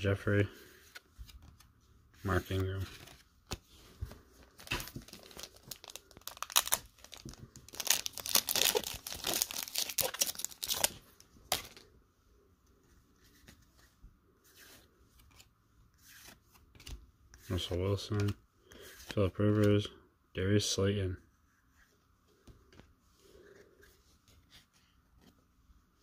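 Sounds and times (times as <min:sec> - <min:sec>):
wrapper tearing and crinkling: 0:04.7 - 0:11.8.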